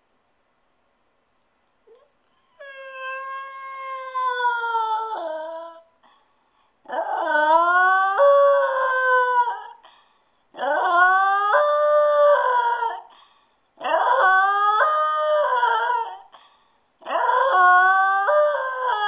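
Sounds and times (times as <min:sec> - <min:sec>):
small dog howling: 0:01.9 - 0:05.9, 0:06.9 - 0:09.8, 0:10.6 - 0:13.1, 0:13.8 - 0:16.3, 0:17.0 - 0:19.0.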